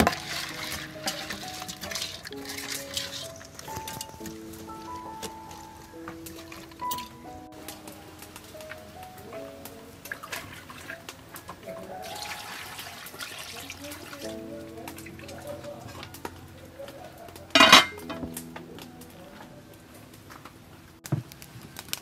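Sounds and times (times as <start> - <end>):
water pouring into a pot: 0.0 - 5.6, 6.2 - 7.1, 10.0 - 16.0
background music: 0.0 - 21.0
metal lid clanking on pot: 17.6 - 18.3.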